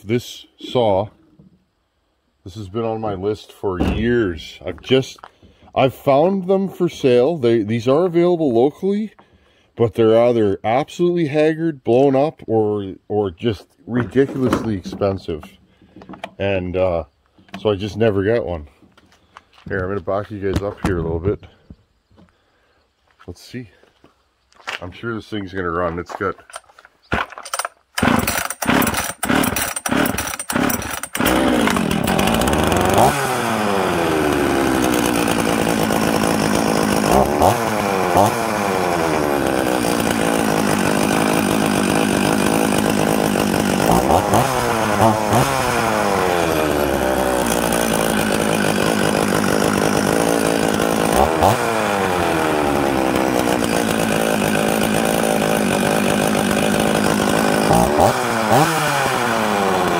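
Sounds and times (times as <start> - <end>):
chainsaw pull-start: 14.0 - 16.5, 26.4 - 59.9
chainsaw revving and idling: 28.0 - 59.9.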